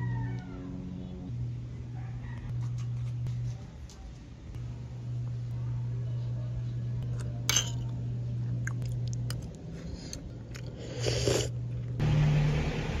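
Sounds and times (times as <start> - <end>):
steady low hum: 0.0 - 13.0
wet eating sounds: 8.4 - 12.0.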